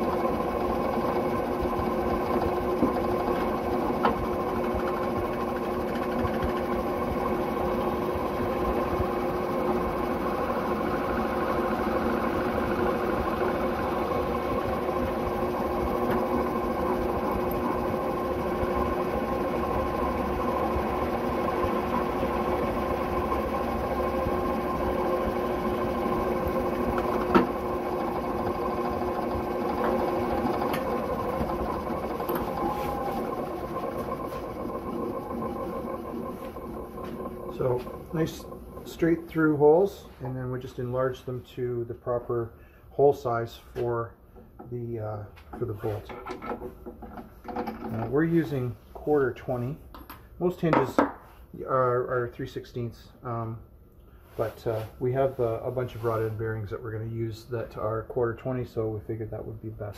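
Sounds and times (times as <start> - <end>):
drill press motor running: 0.0 - 40.0
drill boring through metal: 1.0 - 36.2.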